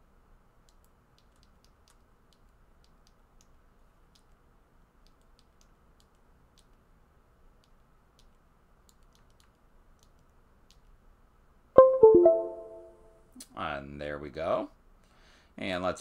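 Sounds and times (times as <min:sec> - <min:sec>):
small button clicks: 0:11.8 - 0:13.0.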